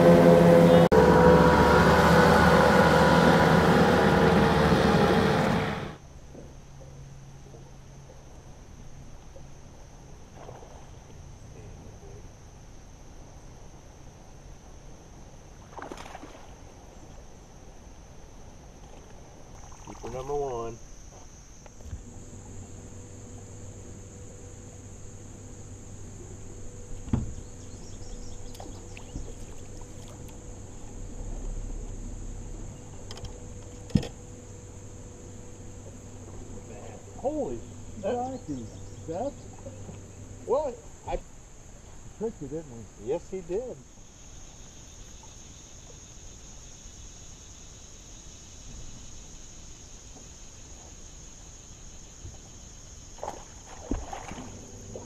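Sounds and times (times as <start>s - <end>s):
high insect drone: 0.0s - 55.0s
small water splashes: 15.6s - 16.8s, 18.8s - 20.4s, 28.4s - 30.9s, 52.3s - 55.0s
faint low rumble: 21.7s - 44.0s
loud knock on boat: 27.0s - 27.5s
thump on boat: 27.0s - 27.5s, 32.9s - 34.2s, 53.2s - 55.0s.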